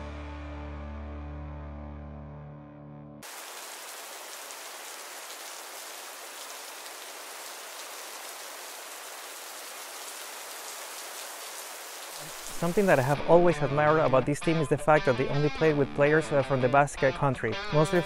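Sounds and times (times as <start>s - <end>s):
background music: 0.0s - 3.2s, 12.6s - 18.0s
steady hiss: 3.2s - 13.2s.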